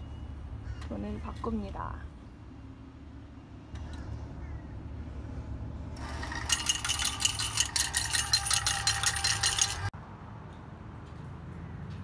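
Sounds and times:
coins clattering into metal tray: 6.3s - 9.9s.

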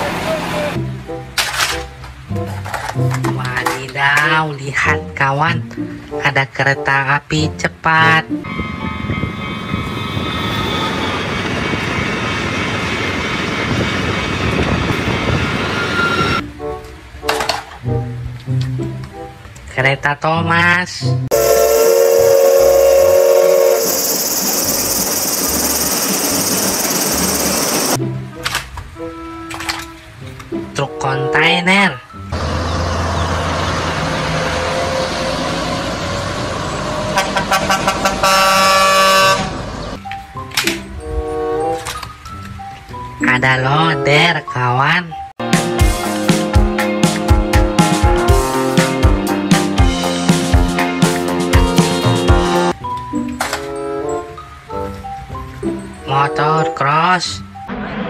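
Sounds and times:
passenger train passing: 0.0s - 1.0s, 8.4s - 16.5s, 21.3s - 28.0s, 32.4s - 40.0s
truck diesel engines running: 0.0s - 3.1s, 8.7s - 16.4s, 21.3s - 28.0s, 32.3s - 40.0s
long air horn blast: 8.4s - 11.3s, 21.3s - 24.4s, 37.1s - 39.6s
air horn toots: 21.3s - 24.4s, 37.1s - 39.6s.

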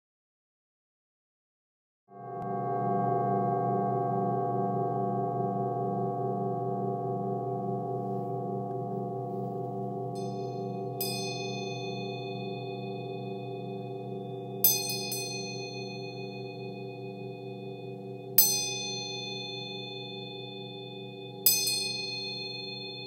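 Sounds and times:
singing bowls humming: 2.4s - 23.0s
high-pitched chime strikes: 10.1s - 23.0s.

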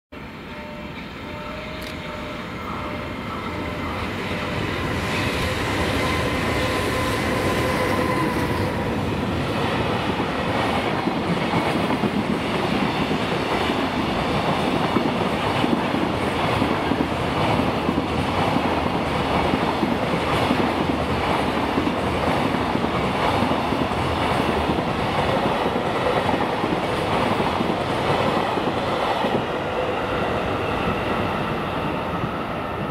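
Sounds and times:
electric locomotive whining: 0.2s - 32.9s.

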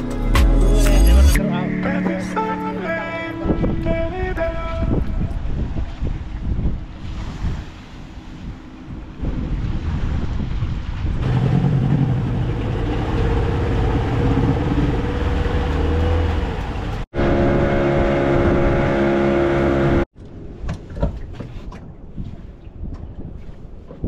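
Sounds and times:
wind: 1.4s - 24.0s
water rushing past hull: 5.2s - 20.1s
outboard motor running: 11.2s - 20.0s.

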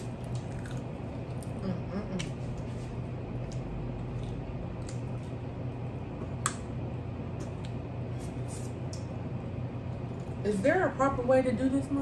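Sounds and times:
wet squishy chewing: 0.0s - 1.6s
low room hum: 0.0s - 12.0s.

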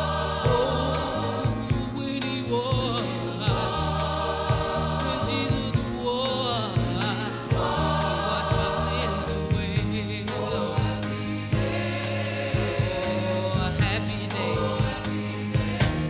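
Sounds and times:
singing over chords and beat: 0.0s - 16.0s.

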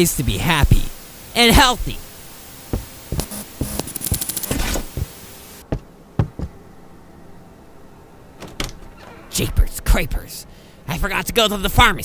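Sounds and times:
rapid clicks and knocks: 2.7s - 5.1s
dull thumps: 2.7s - 6.6s.

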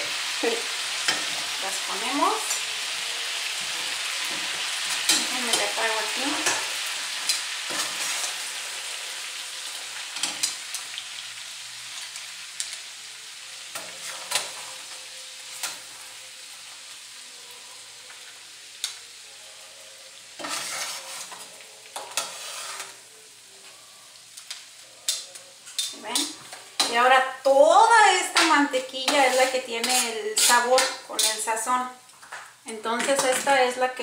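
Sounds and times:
crab legs sizzling in butter: 0.0s - 34.0s
metal tongs clicking against pan: 5.0s - 5.7s, 6.3s - 8.0s, 24.4s - 27.0s, 28.3s - 31.6s.

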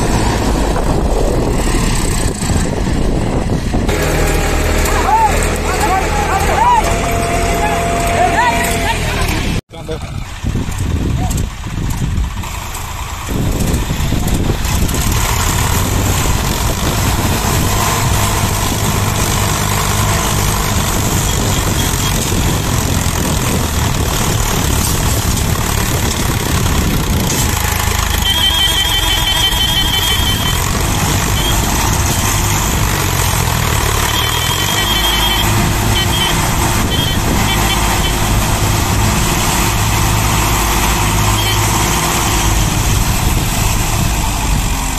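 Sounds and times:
tractor diesel engines running hard: 0.0s - 44.9s
high warbling tone: 3.9s - 9.6s.

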